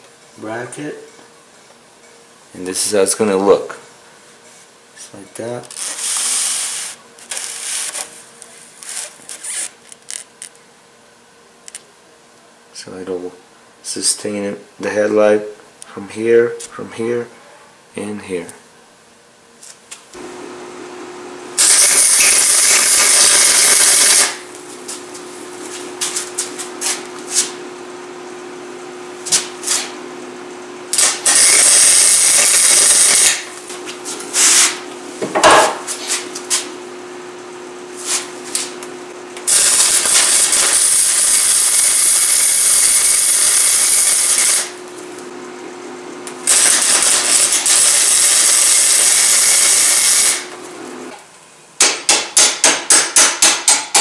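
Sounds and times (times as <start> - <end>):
arc welding hiss: 5.7 - 8.1, 21.5 - 27.6, 30.9 - 36.6, 39.4 - 44.8, 46.4 - 50.5
welder humming: 20.1 - 53.5.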